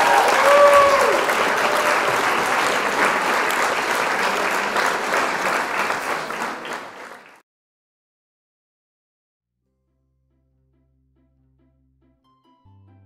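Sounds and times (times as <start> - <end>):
applause: 0.0 - 7.4.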